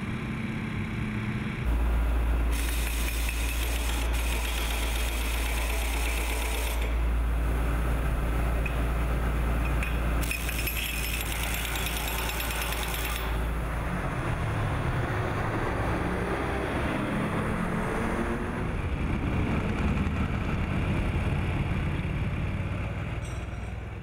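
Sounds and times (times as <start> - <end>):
power wrench running on nuts: 2.5 - 7.0, 10.2 - 13.5.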